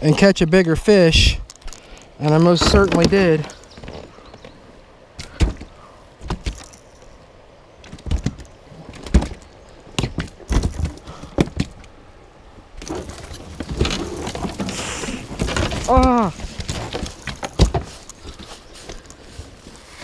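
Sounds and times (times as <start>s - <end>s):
plastic kayak knocking and thumping: 2.3s - 4.5s, 7.9s - 11.8s, 12.8s - 18.4s.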